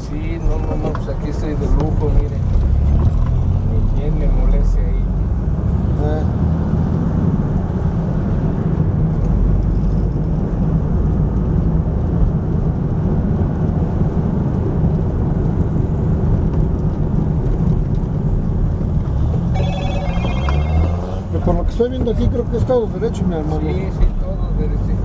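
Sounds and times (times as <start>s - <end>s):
car engine running: 17.8s - 23.0s.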